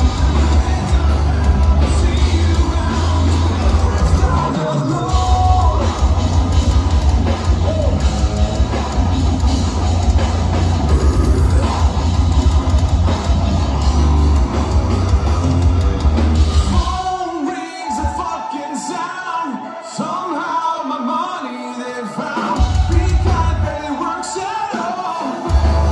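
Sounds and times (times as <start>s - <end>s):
person singing: 0.0s - 6.6s
heavy metal band playing live: 0.0s - 25.9s.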